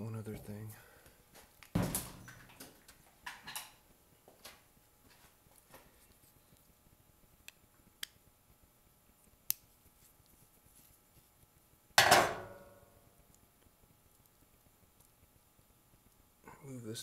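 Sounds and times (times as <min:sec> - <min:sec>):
soft rustles of handling: 0:03.8 - 0:07.9, 0:09.0 - 0:11.9.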